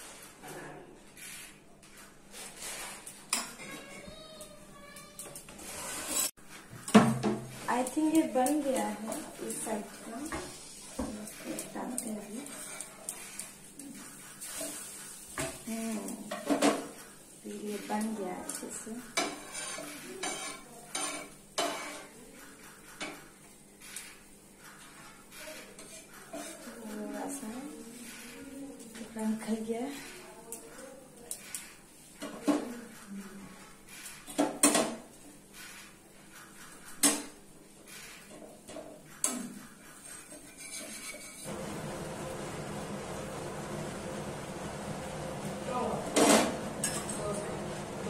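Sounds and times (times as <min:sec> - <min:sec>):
spoon scraping a pan: 0:02.3 - 0:04.1, 0:05.4 - 0:33.0, 0:35.6 - 0:41.5.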